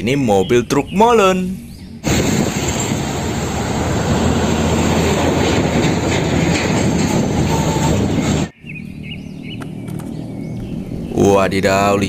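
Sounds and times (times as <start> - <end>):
heavy trucks driving on highway: 2.0 - 8.5.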